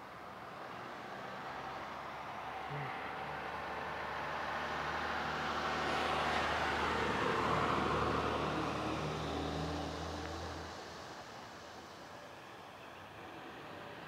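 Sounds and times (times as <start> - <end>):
motor vehicle passing: 0.9 - 11.1.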